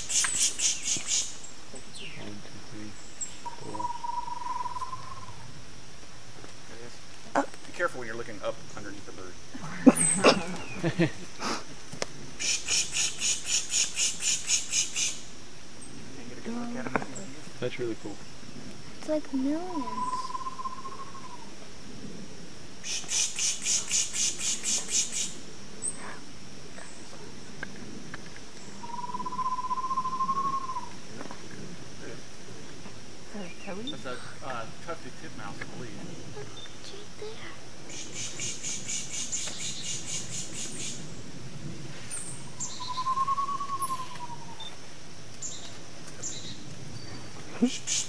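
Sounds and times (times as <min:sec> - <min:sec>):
songbird chip notes: 0:00.0 - 0:05.5, 0:19.0 - 0:21.5, 0:28.6 - 0:31.0, 0:42.2 - 0:44.8
high insect drone: 0:00.0 - 0:48.0
hissing pulses imitation call: 0:12.4 - 0:15.2, 0:22.8 - 0:25.4
thin wavering whistle: 0:28.8 - 0:31.0, 0:42.6 - 0:44.7.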